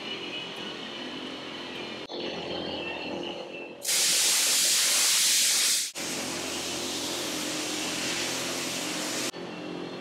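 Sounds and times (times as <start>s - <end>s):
loud steady hiss: 3.8s - 9.3s.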